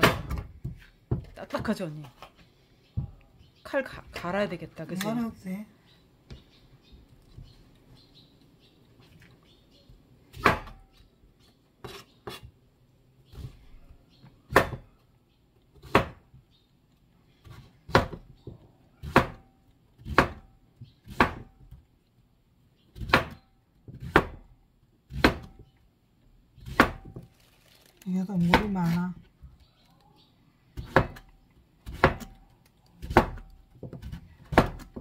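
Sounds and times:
knife chopping on cutting board: 14.5s - 14.8s, 15.8s - 16.2s, 17.4s - 18.3s, 19.0s - 21.6s, 23.0s - 24.4s, 25.1s - 25.6s, 26.6s - 27.2s, 30.8s - 32.4s, 33.0s - 35.0s.

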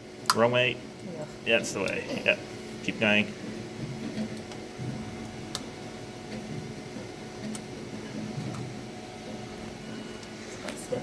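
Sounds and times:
low room hum: 0.0s - 11.0s.

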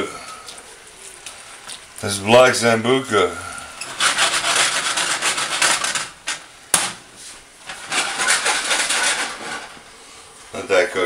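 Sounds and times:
rough scraping and rubbing: 3.8s - 6.4s, 7.2s - 10.0s.

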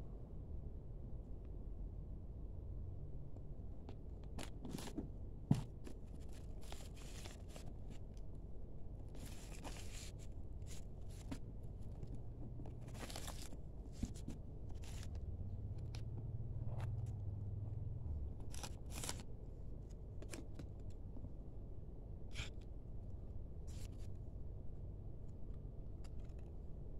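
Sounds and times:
low steady hum: 0.0s - 26.9s
packing wrap crinkling: 12.7s - 15.2s, 18.4s - 19.3s.

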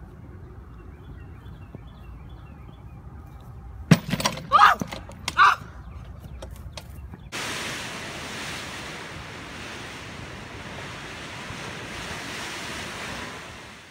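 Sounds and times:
steady rushing noise: 7.3s - 13.9s.

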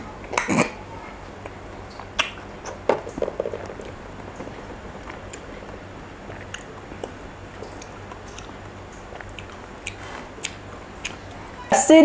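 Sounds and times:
wet chewing mouth smacks: 1.9s - 2.8s, 3.6s - 11.4s.

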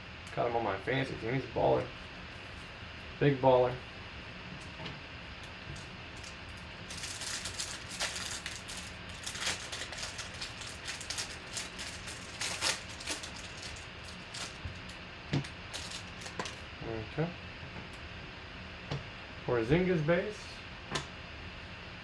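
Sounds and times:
plastic card sleeves crinkling: 5.8s - 15.0s, 15.7s - 16.6s.

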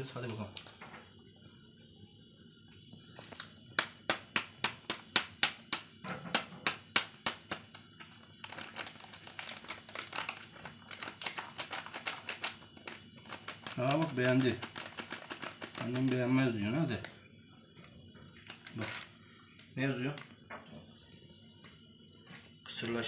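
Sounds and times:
cat crunching dry kibble: 8.4s - 16.3s.

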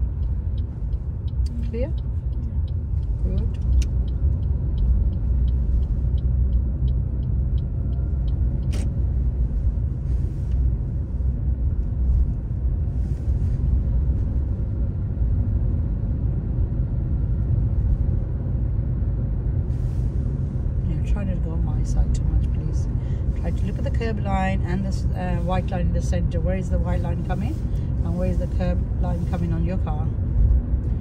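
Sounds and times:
turn indicator ticking: 0.0s - 9.9s
car engine and road rumble: 0.0s - 31.0s.

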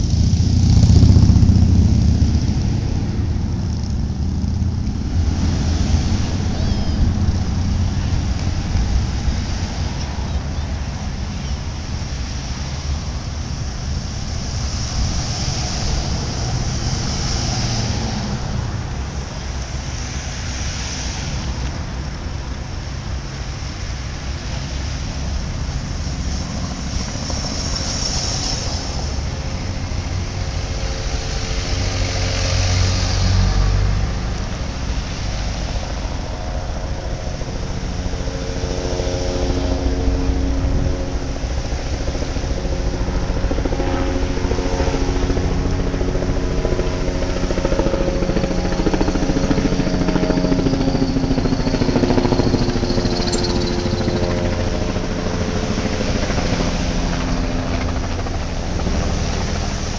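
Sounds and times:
cars passing: 0.0s - 59.9s
steady engine drone: 0.0s - 59.9s.

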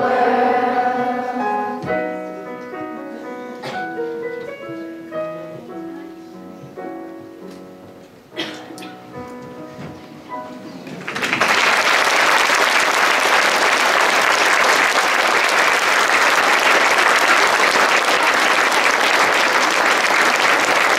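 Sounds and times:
piano notes: 0.0s - 11.5s
audience applause: 10.9s - 20.9s.

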